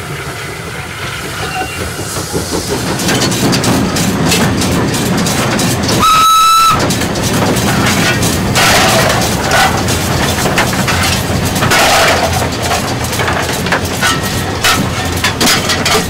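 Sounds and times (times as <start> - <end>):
steam locomotive cab noise: 0.0 - 16.0.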